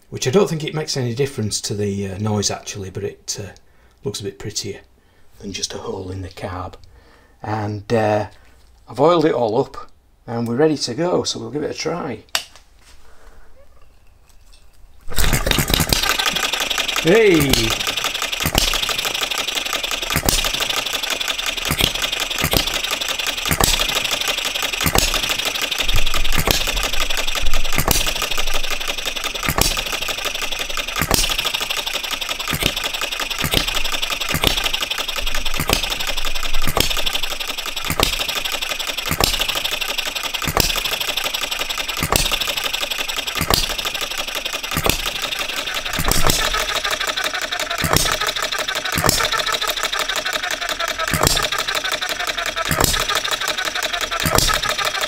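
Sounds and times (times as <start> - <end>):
engine mechanical clatter: 15.0 - 55.0
engine firing sharp beats: 15.1 - 55.0.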